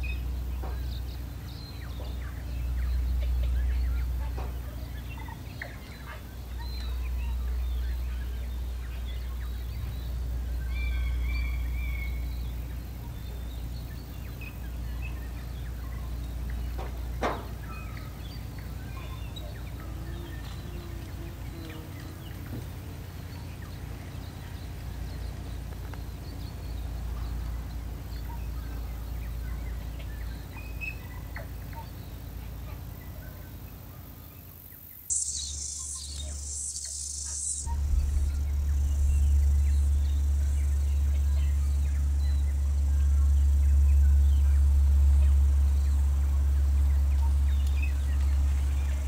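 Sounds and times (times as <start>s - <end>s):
bird chirps: 35.1s - 49.0s
high hiss pulses: 35.1s - 49.0s
low rumble: 35.1s - 49.0s.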